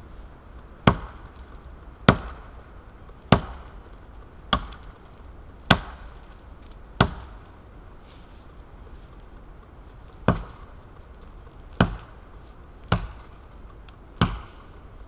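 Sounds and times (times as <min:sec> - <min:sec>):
axe chopping into tree trunk: 0:00.8 - 0:01.4, 0:02.0 - 0:02.5, 0:03.3 - 0:03.8, 0:04.5 - 0:04.9, 0:05.7 - 0:06.2, 0:07.0 - 0:07.4, 0:10.2 - 0:10.7, 0:11.7 - 0:12.2, 0:12.9 - 0:13.4, 0:14.2 - 0:14.7.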